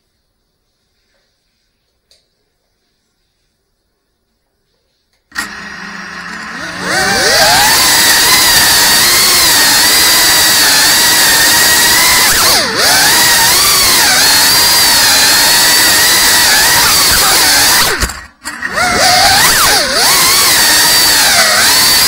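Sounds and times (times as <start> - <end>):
drone motors whining: 5.4 - 22.0.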